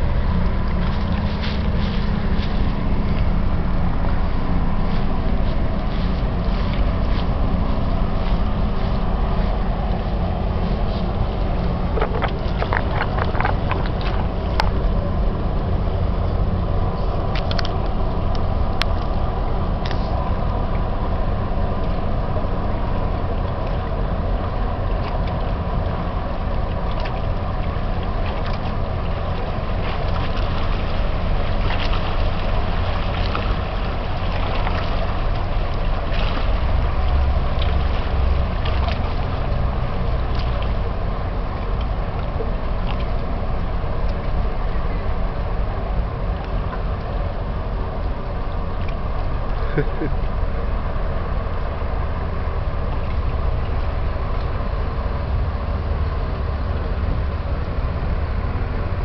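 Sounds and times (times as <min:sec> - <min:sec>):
wind buffeting microphone: 0:00.0 - 0:49.4
tug diesel engines rumbling: 0:00.0 - 0:59.0.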